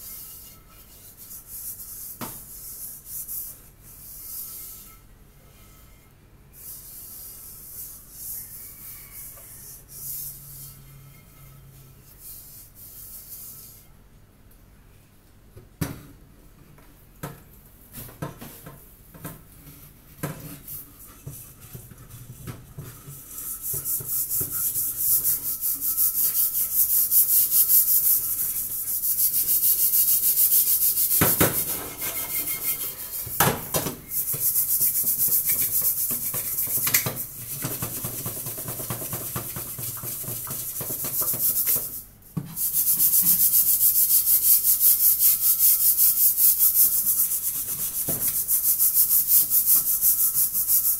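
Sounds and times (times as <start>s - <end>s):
scrubbing pot bottom: 31.0s - 41.8s.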